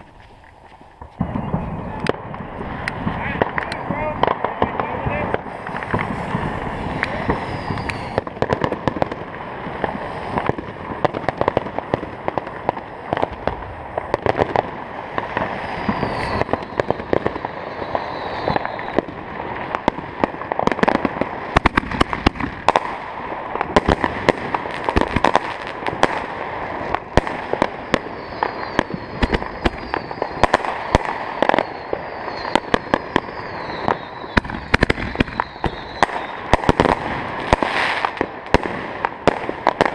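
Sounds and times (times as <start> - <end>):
firecracker bangs and crackling: 0.0 - 39.9
faint falling whistles: 1.2 - 2.1, 6.7 - 8.2, 15.4 - 19.0, 27.8 - 36.5.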